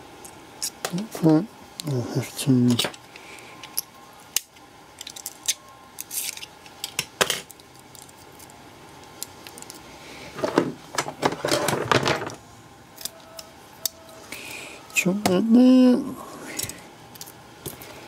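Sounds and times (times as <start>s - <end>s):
scraping and rustling: 10.3s - 12.3s.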